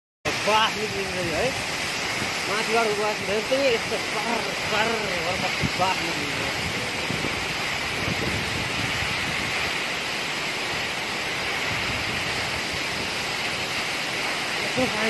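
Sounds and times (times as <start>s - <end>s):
waterfall rushing: 0.3s - 15.0s.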